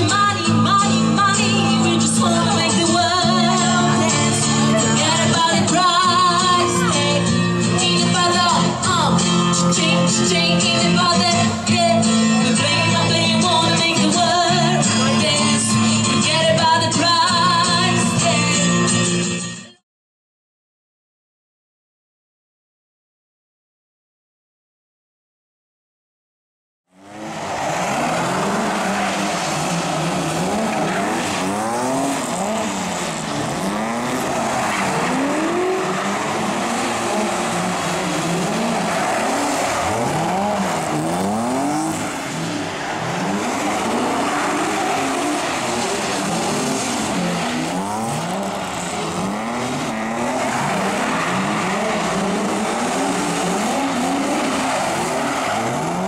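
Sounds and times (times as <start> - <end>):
car engines revving: 0.0 - 19.2, 26.9 - 56.0
tyres squealing: 27.1 - 56.0.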